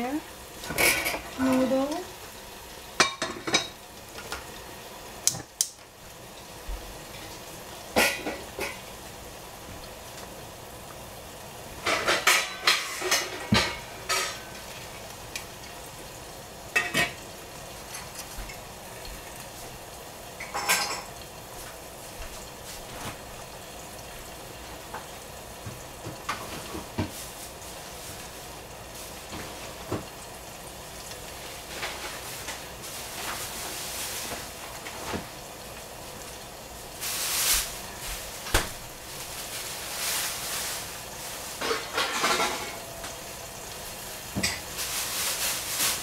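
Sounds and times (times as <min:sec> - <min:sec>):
kitchenware clinking: 0:00.6 - 0:01.4, 0:03.0 - 0:03.8, 0:07.9 - 0:08.8, 0:11.8 - 0:14.6, 0:16.7 - 0:17.2, 0:20.4 - 0:21.2, 0:41.6 - 0:43.2, 0:44.4 - 0:44.7.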